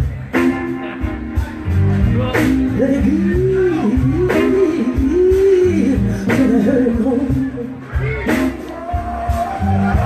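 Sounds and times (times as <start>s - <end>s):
live blues band playing: 0.0s - 10.0s
woman singing: 2.7s - 8.5s.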